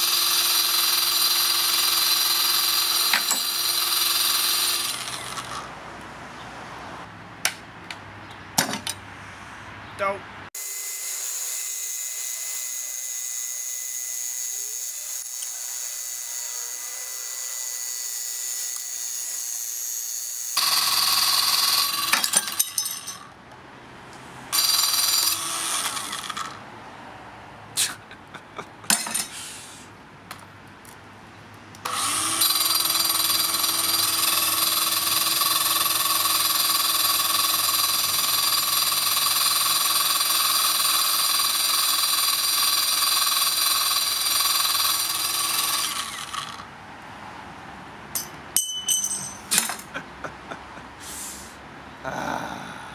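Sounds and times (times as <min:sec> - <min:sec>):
glass cutter saw whining: 0:00.0 - 0:05.7, 0:10.6 - 0:23.3, 0:24.5 - 0:26.6, 0:31.8 - 0:46.7.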